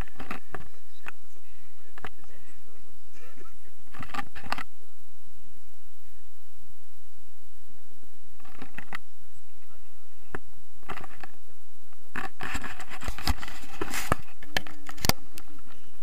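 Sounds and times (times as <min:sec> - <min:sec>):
harness straps rustling and scraping: 0:12.2 - 0:15.8.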